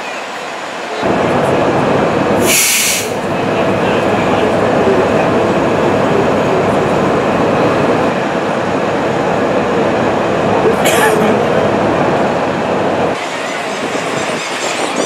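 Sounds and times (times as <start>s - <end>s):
street traffic rumble: 0.0s - 15.0s
loud hiss: 2.4s - 3.2s
crowd bustle: 13.1s - 15.0s.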